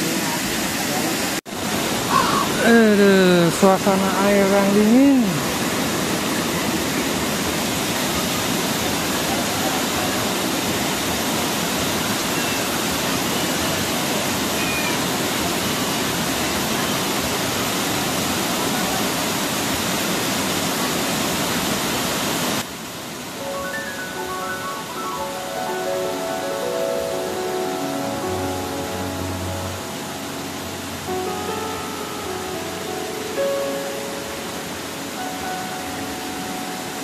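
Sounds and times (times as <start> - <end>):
water rushing over stone weirs: 0.0 - 24.2.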